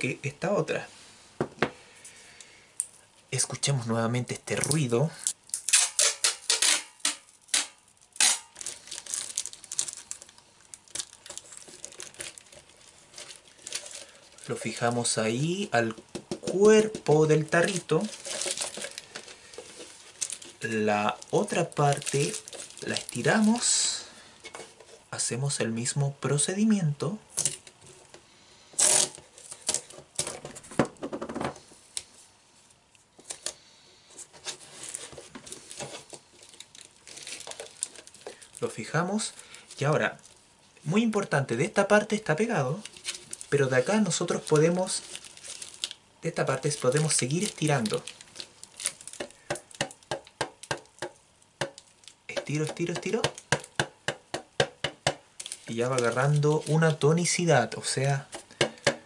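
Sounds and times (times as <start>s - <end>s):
tape and plastic crinkling: 4.5s - 25.0s, 28.8s - 30.7s, 34.2s - 41.3s, 42.0s - 59.0s
tape ripping off roll: 5.5s - 10.3s, 28.8s - 30.4s
adhesive tape rasping: 5.7s - 8.6s.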